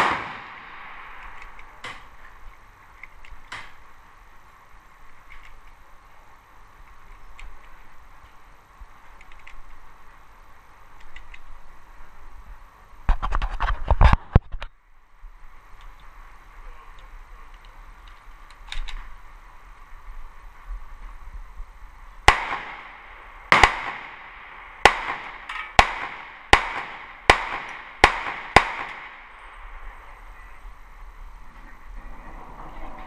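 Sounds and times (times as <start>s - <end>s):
pistol shots: 0.0s - 2.2s, 22.3s - 29.7s
sharp clicks: 0.0s - 2.2s, 9.2s - 9.8s, 11.0s - 11.5s.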